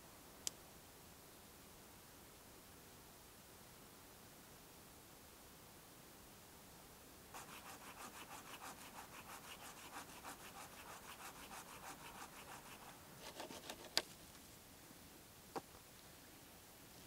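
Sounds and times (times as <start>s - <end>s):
hand saw cutting wood: 7.4s - 14.0s.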